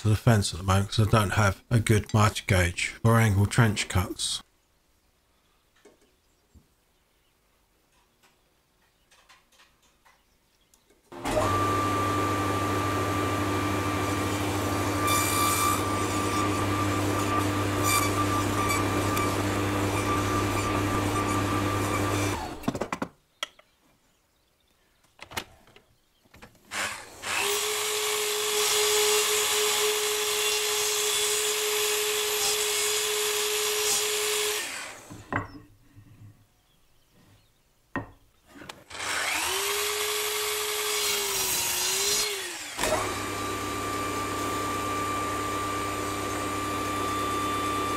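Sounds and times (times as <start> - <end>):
mitre saw cutting wood: 11.1 - 22.8, 26.7 - 35.3, 38.8 - 47.9.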